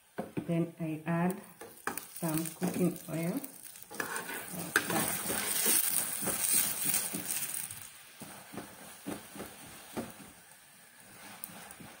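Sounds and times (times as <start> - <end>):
oil sizzling in a frying pan: 1.2 - 12.0.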